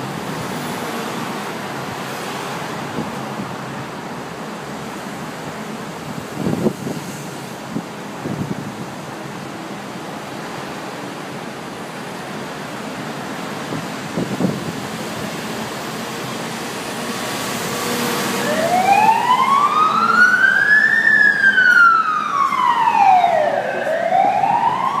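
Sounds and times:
ambulance siren wailing: 18.1s - 25.0s.

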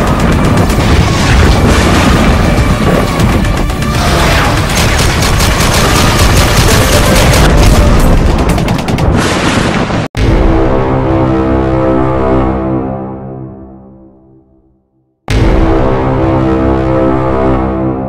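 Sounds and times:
music: 0.0s - 9.2s, 10.2s - 18.0s
machine-gun fire: 0.0s - 10.1s
explosion booms: 0.2s - 3.4s.

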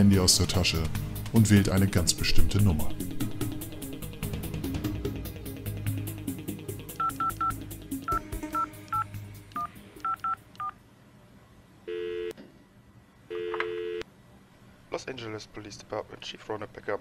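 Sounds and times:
phone keypad beeps: 7.0s - 7.5s, 8.1s - 10.8s
phone ringing tone: 7.0s - 10.8s, 11.9s - 12.4s, 13.3s - 14.0s.

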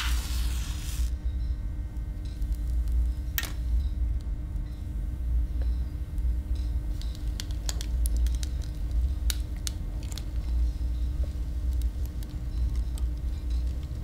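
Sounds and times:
paper burning and crackling: 0.0s - 1.1s
low hum: 0.0s - 14.0s.

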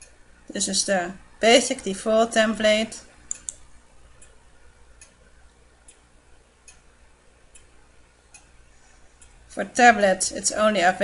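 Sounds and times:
faint even ticking: 3.2s - 10.5s
mouse clicks: 3.3s - 4.4s.

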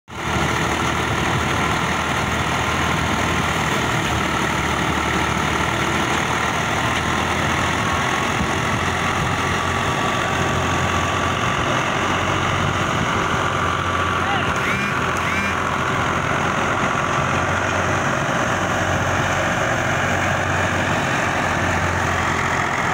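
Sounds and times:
diesel tractor engine running: 0.1s - 22.9s
threshing machine din: 14.1s - 16.1s.

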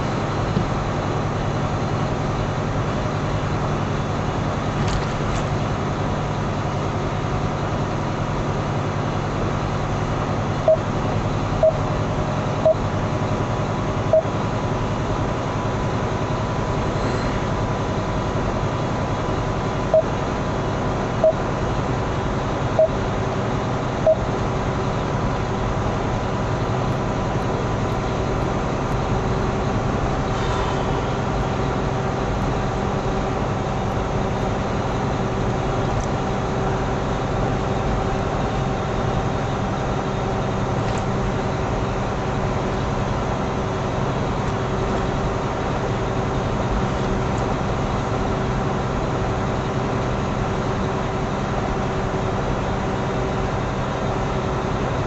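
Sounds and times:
road noise inside cab: 0.0s - 55.0s
truck engine running: 0.0s - 55.0s
short beeps: 10.7s - 10.9s, 11.6s - 11.8s, 12.6s - 12.8s, 14.1s - 14.3s, 19.9s - 20.1s, 21.2s - 21.4s, 22.8s - 23.0s, 24.0s - 24.3s.

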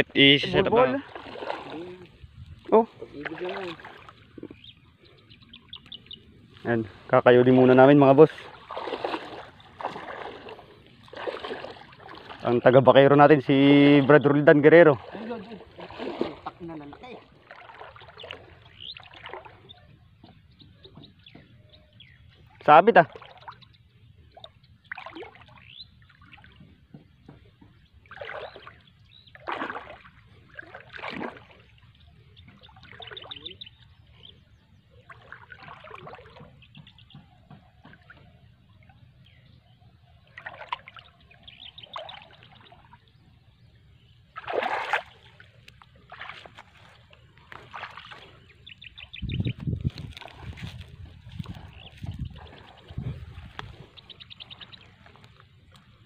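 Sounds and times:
water splashing off a net: 1.1s - 2.0s, 8.4s - 12.5s, 15.0s - 16.7s, 17.5s - 19.6s, 28.0s - 31.7s, 44.4s - 46.8s, 47.5s - 48.3s.

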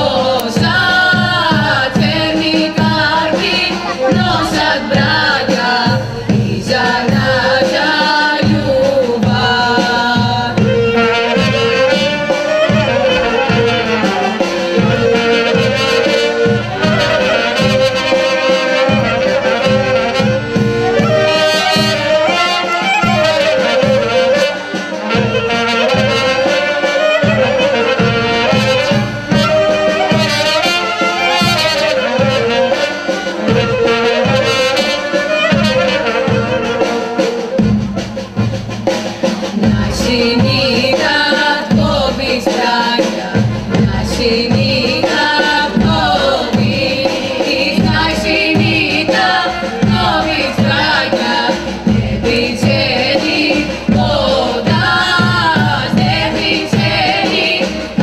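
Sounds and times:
clarinet and brass melody: 0.0s - 5.9s, 9.7s - 38.6s
steady drum beat: 0.0s - 58.0s.

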